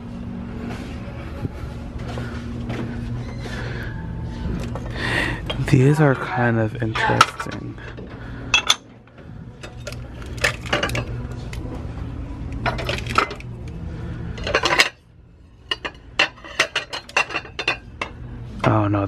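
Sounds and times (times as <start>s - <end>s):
low steady hum: 0.0s - 19.0s
ceramic plates clinking: 6.9s - 7.7s, 8.5s - 8.9s, 14.3s - 15.0s, 15.6s - 18.3s.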